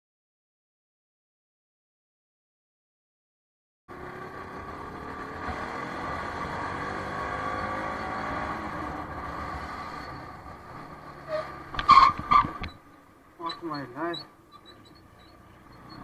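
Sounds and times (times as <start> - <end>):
motorcycle engine accelerating: 3.9 - 12.8.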